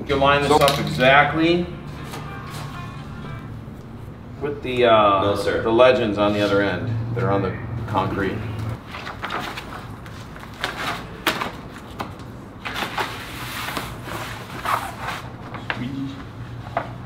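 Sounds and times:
steady low hum: 0.0 - 10.5
vinyl sheet rustling and crinkling: 8.8 - 17.0.

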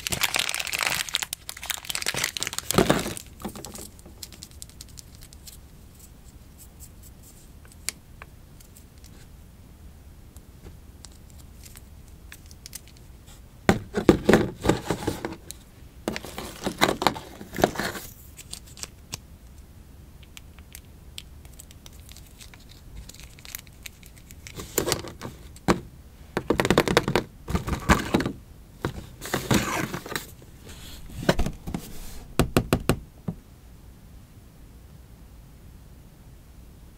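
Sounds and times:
plastic crinkling and scraping: 0.0 - 7.8, 11.2 - 19.0, 21.5 - 32.3.

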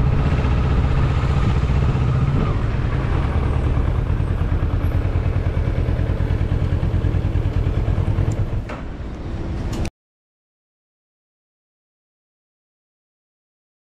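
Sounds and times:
motorcycle engine running: 0.0 - 9.8.

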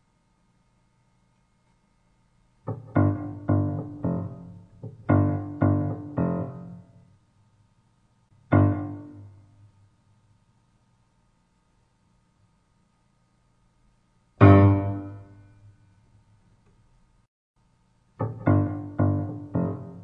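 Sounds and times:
piano chords: 2.7 - 7.0, 8.4 - 9.5, 14.4 - 15.7, 18.2 - 20.0.

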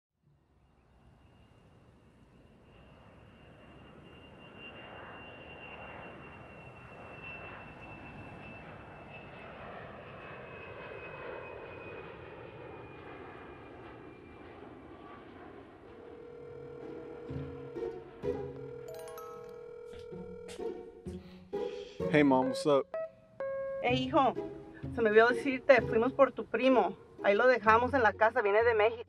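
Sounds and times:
jet airliner engine rush: 1.4 - 18.5
high turbine whine dropping in pitch: 1.5 - 18.9.

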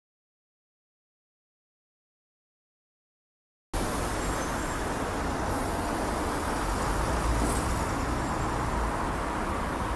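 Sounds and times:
city street traffic: 3.8 - 9.9.

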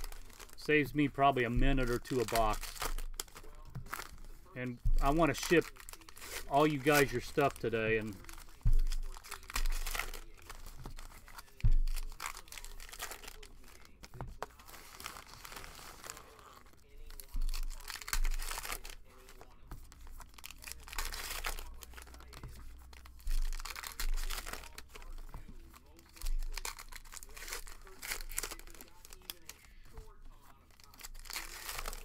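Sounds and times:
wrappers torn and crinkled: 0.0 - 32.0.

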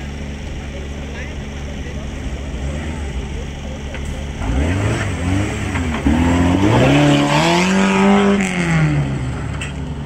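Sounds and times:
engine revving hard: 4.4 - 9.3.

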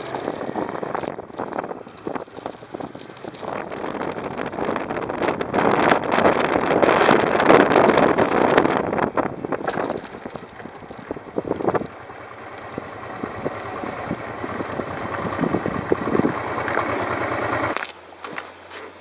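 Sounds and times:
motorcycle engine idling: 0.0 - 5.3, 9.3 - 17.8
wind noise: 0.0 - 17.0
tyres crackling over gravel: 0.0 - 19.0.

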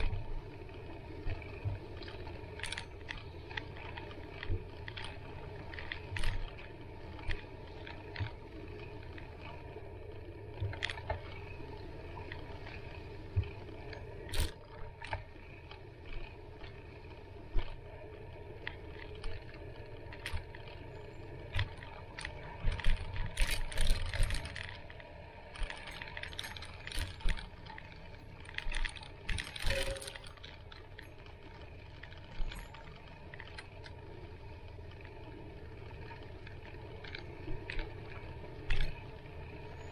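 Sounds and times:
bicycle tyres rumbling on dirt: 0.0 - 39.9
bike knocks and rattles: 28.4 - 31.1.

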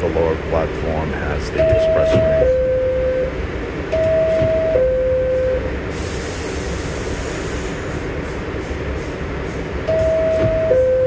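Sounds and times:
train car hum: 0.0 - 11.0
two-note door chime: 1.6 - 3.3, 4.0 - 5.6, 9.9 - 11.0
air hiss: 5.9 - 9.7.

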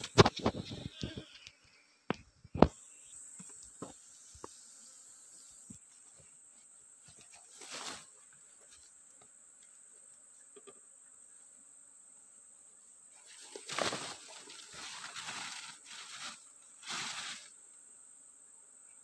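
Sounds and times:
rustling in leafy undergrowth: 3.9 - 9.0, 13.1 - 17.8.

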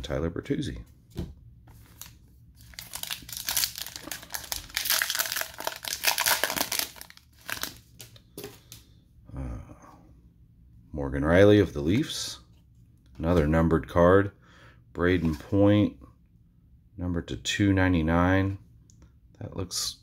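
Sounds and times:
cards rustling: 1.7 - 8.8
foil wrapper crinkling and tearing: 1.9 - 8.2.

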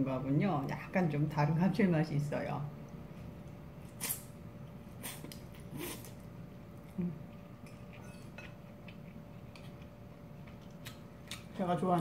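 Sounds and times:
chewing: 6.8 - 12.0.

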